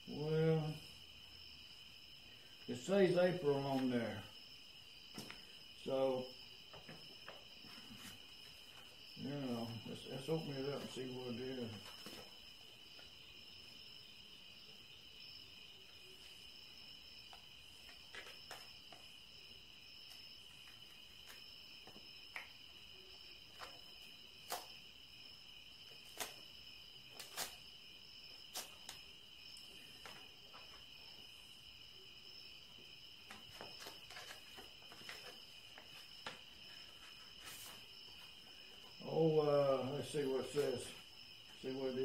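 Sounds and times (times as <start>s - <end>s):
paper crinkling: 33.3s - 37.8s.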